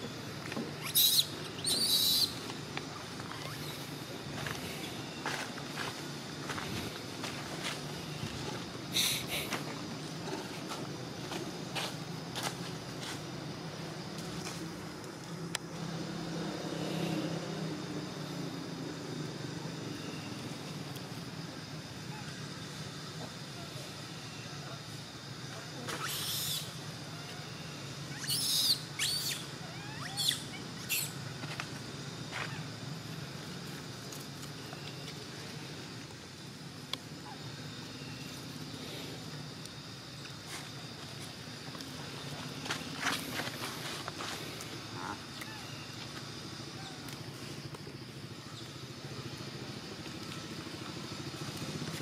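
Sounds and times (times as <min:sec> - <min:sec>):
monkey squealing: 0:00.8 - 0:02.4, 0:28.1 - 0:31.1.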